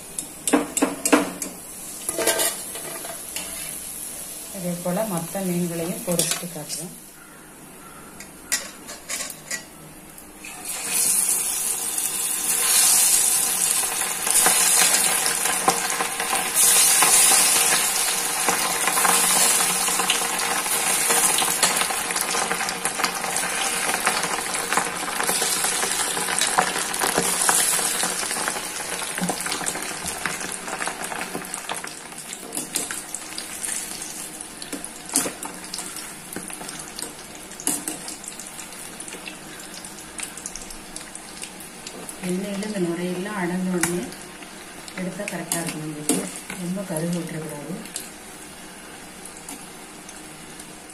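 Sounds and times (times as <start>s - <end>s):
fish deep-frying in hot oil: 10.4s - 50.9s.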